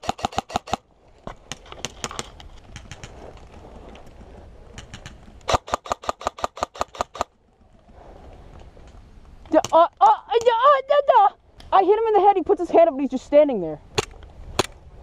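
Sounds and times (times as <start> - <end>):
airsoft gun firing: 0.0 - 0.8, 4.9 - 7.3.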